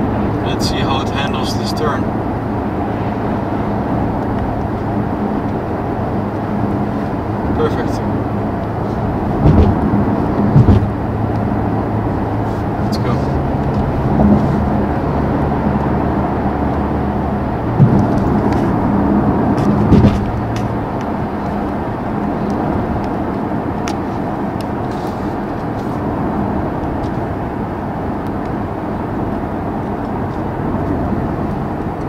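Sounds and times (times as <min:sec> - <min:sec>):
car engine hum: 0:00.0 - 0:32.0
in-cabin road noise: 0:00.0 - 0:32.0
brief thumps: 0:09.4 - 0:11.0, 0:17.8 - 0:18.7, 0:19.6 - 0:20.7.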